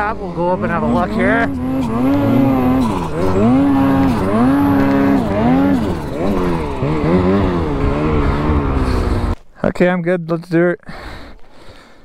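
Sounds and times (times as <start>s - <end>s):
snowmobile engine revving: 0.0s - 9.4s.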